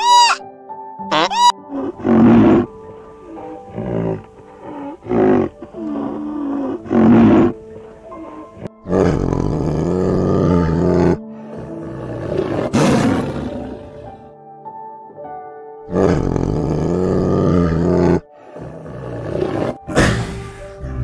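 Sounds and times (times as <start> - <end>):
soft background music: 0.0 - 21.0
large animal roaring: 1.7 - 14.3, 15.9 - 21.0.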